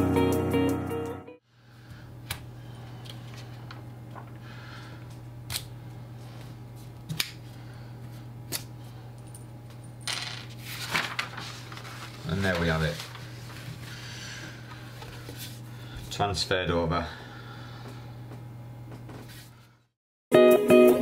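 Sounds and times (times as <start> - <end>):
paper rustling: 10.5 - 14.0.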